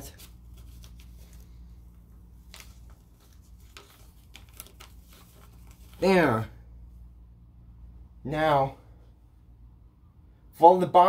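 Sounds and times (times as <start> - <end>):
paper rustling and creasing: 0.0 - 6.3.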